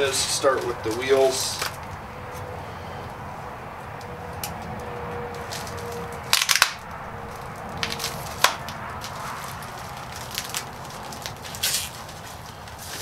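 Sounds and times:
plastic bag crinkling and tearing: 0:05.4 - 0:13.0.

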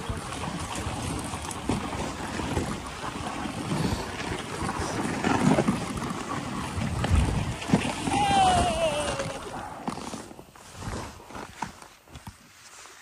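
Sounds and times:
wind on microphone: 0:00.0 - 0:10.0
sled bumps and knocks: 0:00.0 - 0:12.4.

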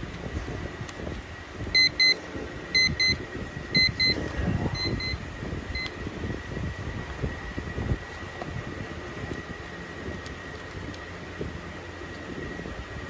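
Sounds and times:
alarm clock beeping: 0:01.8 - 0:04.2, 0:04.8 - 0:05.2.

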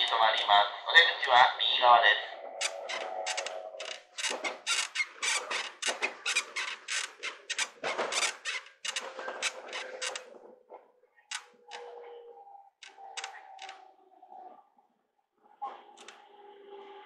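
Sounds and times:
train scraping creaking strokes: 0:02.4 - 0:10.5, 0:12.8 - 0:13.8.

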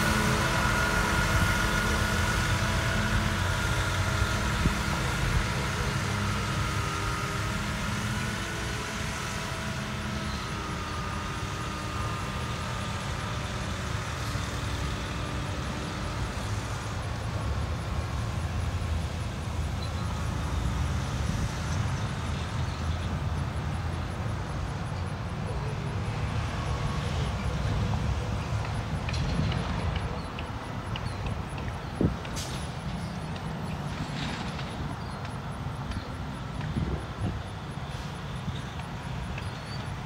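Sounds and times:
vehicle engine idling: 0:00.0 - 0:20.7.

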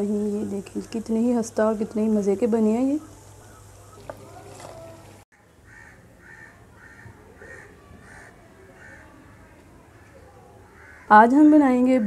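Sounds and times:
bird calling faintly: 0:03.0 - 0:11.3.

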